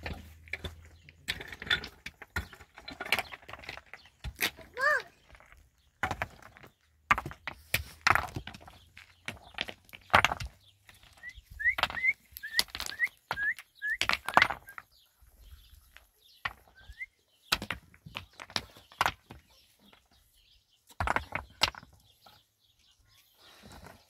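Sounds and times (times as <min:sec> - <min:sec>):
bird chirping: 0:07.6 - 0:24.0.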